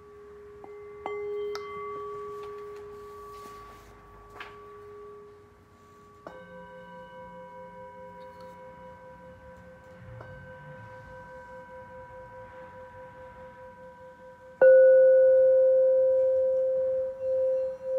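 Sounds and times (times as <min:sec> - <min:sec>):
singing bowl ringing: 0:00.0 - 0:04.0, 0:04.6 - 0:17.9.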